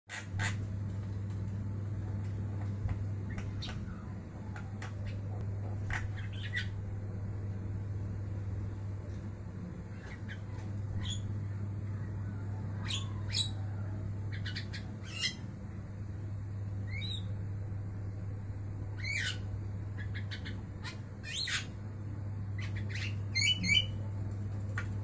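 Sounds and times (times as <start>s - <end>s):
steady low hum: 0.1s - 25.0s
myna squawks and whistled calls: 19.0s - 21.8s.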